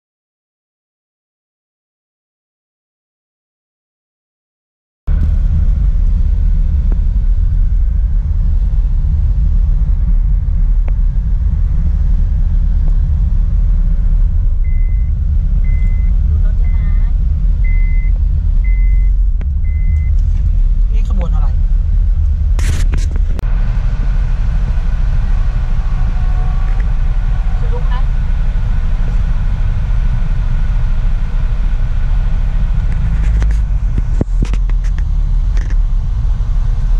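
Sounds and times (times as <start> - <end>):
car cabin road rumble: 5.1 - 36.9
high electronic beep: 14.6 - 20.2.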